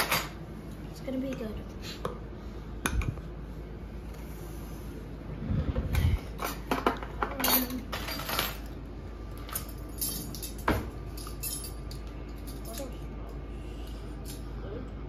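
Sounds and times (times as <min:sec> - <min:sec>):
kitchenware clinking: 0:00.0 - 0:00.4, 0:06.4 - 0:08.8, 0:09.4 - 0:13.0.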